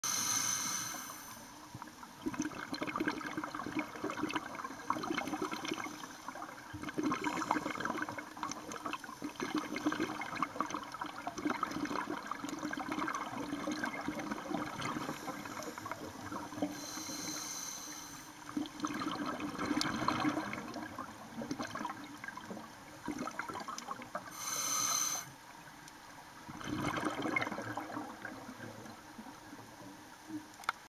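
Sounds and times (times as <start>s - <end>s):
regulator inhalation hiss: 0.0s - 1.6s, 16.6s - 18.4s, 24.3s - 25.4s
gurgling exhaled bubbles: 2.1s - 17.0s, 18.4s - 24.3s, 26.4s - 29.8s.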